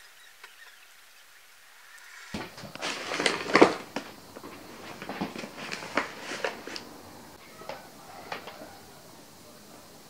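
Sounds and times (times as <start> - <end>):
shopping knocking and clicking: 2.4 - 8.6
packaging rustling: 2.4 - 8.7.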